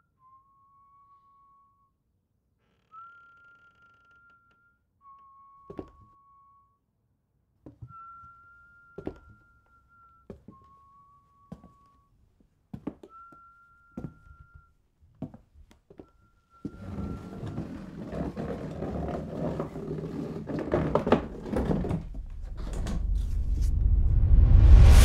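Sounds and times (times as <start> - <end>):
whistle-like tone: 0.0 - 2.0, 2.8 - 6.8, 7.8 - 12.1, 13.0 - 14.7.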